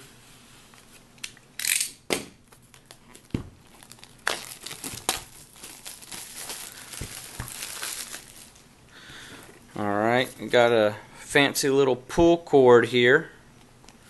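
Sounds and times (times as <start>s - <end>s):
plastic film crinkling: 2.5s - 8.7s.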